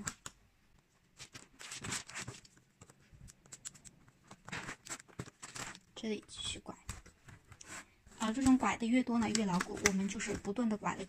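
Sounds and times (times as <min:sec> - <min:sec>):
plastic strap scraping through weave: 0:01.2 - 0:02.5, 0:03.6 - 0:05.9, 0:06.9 - 0:10.6.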